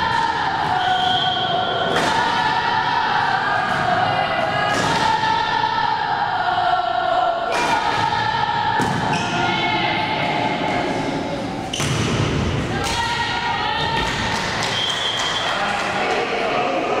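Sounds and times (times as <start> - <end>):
volleyball hits: 0.0 - 5.4, 7.5 - 9.7, 11.6 - 15.4
high voices chanting: 0.0 - 11.7.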